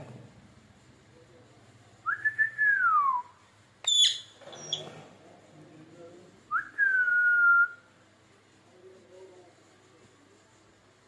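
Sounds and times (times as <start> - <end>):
parakeet whistling: 3.9 - 4.9
shrill parakeet squawk: 3.9 - 4.9.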